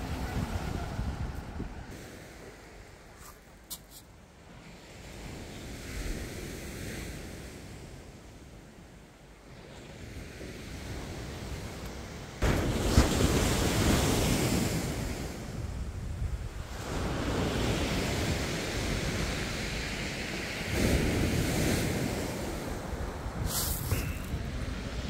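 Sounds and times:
wind rumbling on microphone: 0.0s - 3.6s, 9.5s - 25.0s
waves breaking on shingle beach: 12.4s - 15.6s, 16.6s - 25.0s.

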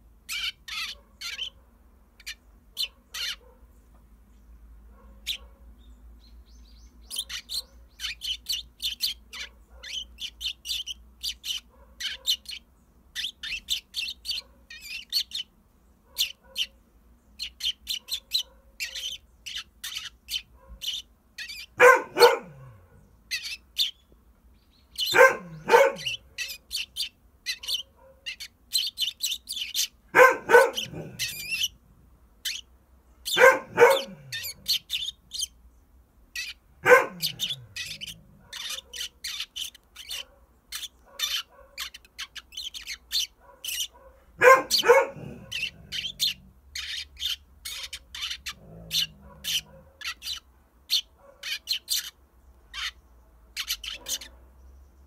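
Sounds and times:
sparrow chirping: 0.1s - 55.0s
dog barking: 0.9s - 1.7s, 2.8s - 3.7s, 4.9s - 5.8s, 9.4s - 10.0s, 11.7s - 12.5s, 14.3s - 14.7s, 16.0s - 16.8s, 18.0s - 19.2s, 20.5s - 20.9s, 21.8s - 23.1s, 25.0s - 26.2s, 27.6s - 28.3s, 30.1s - 31.6s, 33.3s - 34.7s, 36.8s - 39.2s, 40.1s - 41.9s, 43.4s - 46.4s, 48.5s - 50.2s, 51.2s - 51.6s, 53.8s - 54.5s.

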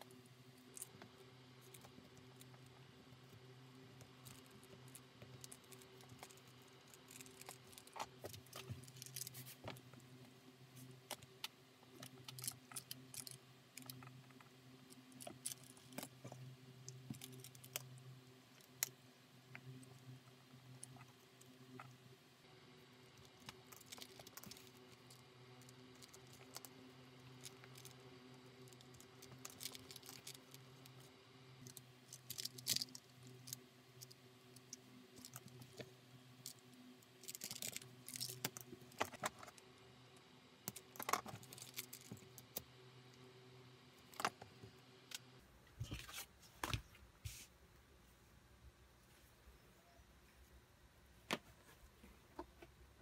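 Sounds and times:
low steady hum: 0.0s - 53.0s
needles clicking and rustling: 4.0s - 10.1s.

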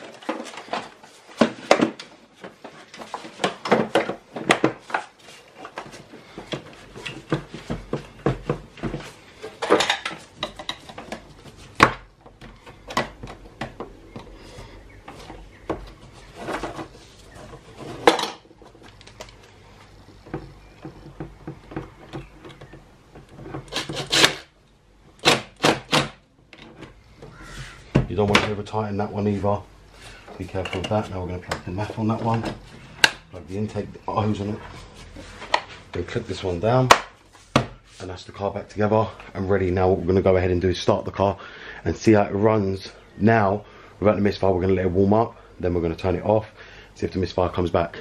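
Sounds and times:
plastic parts clicking and knocking: 0.0s - 14.4s.

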